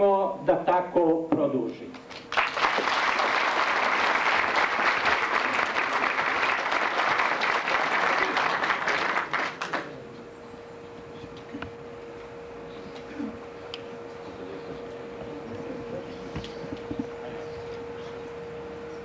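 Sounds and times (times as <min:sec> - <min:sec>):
faint steady hum: 0:00.0 - 0:19.0
audience applauding: 0:02.0 - 0:10.0.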